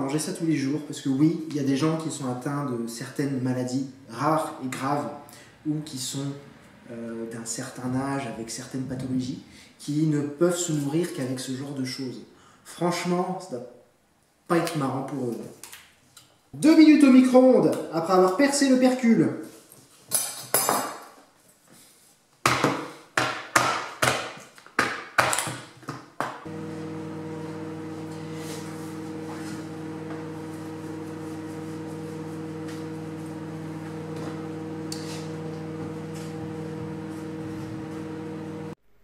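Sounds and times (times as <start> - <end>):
microwave oven humming: 26.5 - 38.8.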